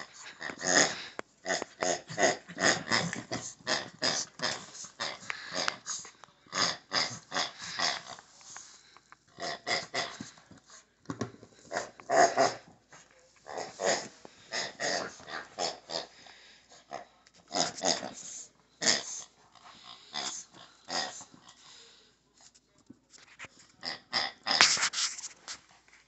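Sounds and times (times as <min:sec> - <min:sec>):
dog growling in play: 0:00.0 - 0:08.2, 0:13.5 - 0:16.2, 0:16.8 - 0:21.4.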